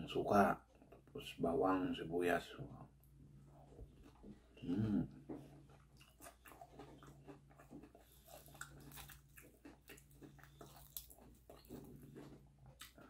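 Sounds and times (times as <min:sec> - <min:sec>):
person chewing crispy food: 0:03.5 - 0:13.0
short vocal sound: 0:04.6 - 0:05.2.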